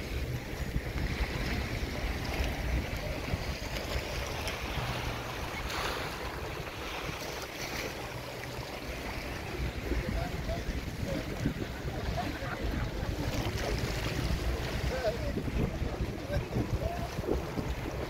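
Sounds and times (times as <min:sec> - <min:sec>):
sea waves: 0:00.0 - 0:18.0
wind rumbling on microphone: 0:00.0 - 0:18.0.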